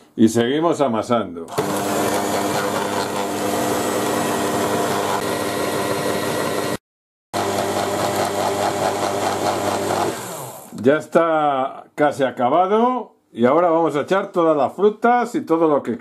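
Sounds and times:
stand mixer motor kneading dough: 1.5 - 6.8, 7.4 - 10.8.

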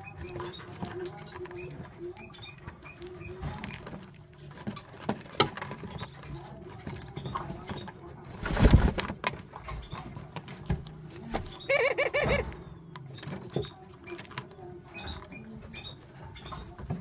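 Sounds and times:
loud rustling flurry: 8.3 - 9.2
doves cooing: 11.0 - 16.7.

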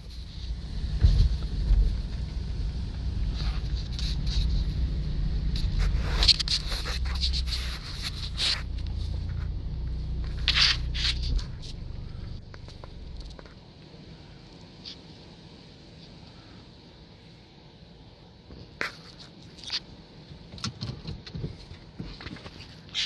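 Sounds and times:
car engine rumbling: 0.0 - 16.9
short hissy scrapes: 3.2 - 12.4.

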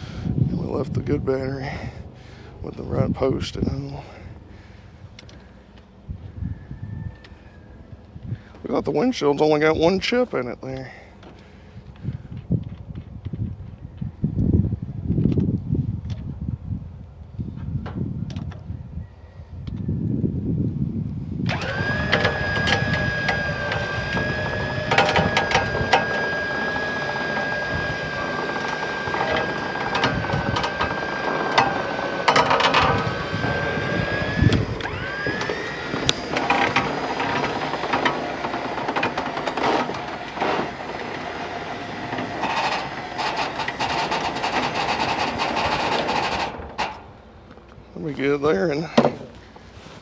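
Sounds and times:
vehicle engine whine: 21.2 - 48.3
rattles and knocks: 23.7 - 26.4, 28.2 - 33.6, 36.2 - 47.1.

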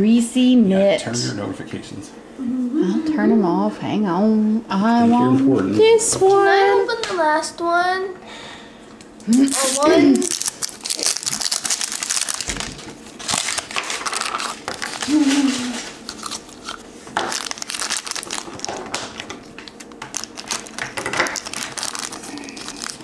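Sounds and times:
plastic packaging crinkling: 9.4 - 23.0.

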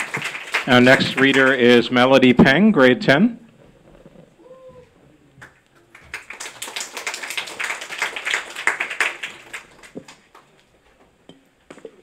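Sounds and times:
small audience clapping: 0.0 - 1.8, 5.4 - 10.7.

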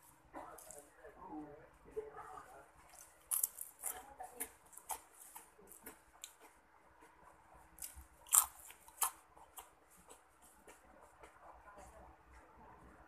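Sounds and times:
crunchy chewing of snack: 2.8 - 11.6.

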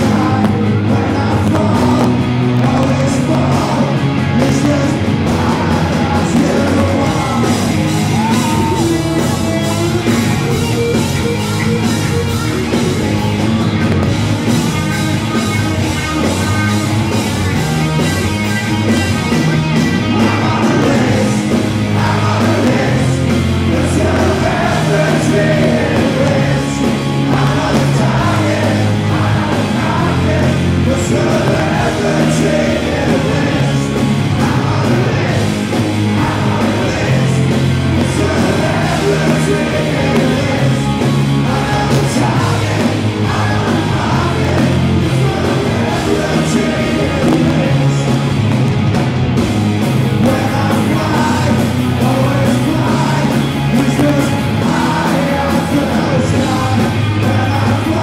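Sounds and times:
man singing into a microphone: 0.0 - 8.8, 41.5 - 48.0, 50.2 - 58.0
live rock band playing: 0.0 - 58.0.

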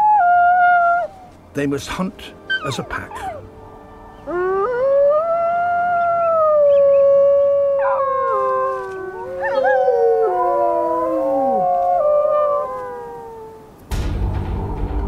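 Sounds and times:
wolves howling in chorus: 2.5 - 3.5, 4.2 - 13.8.

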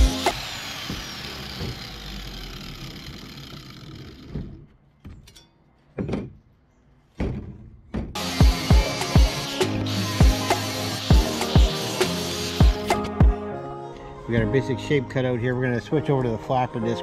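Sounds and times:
handheld saw winding down: 0.0 - 4.6, 8.2 - 13.2.

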